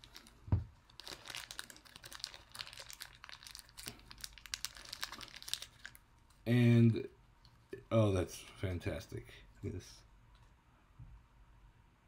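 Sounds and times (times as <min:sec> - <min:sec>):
wrapping crinkling and tearing: 0:00.0 - 0:06.4.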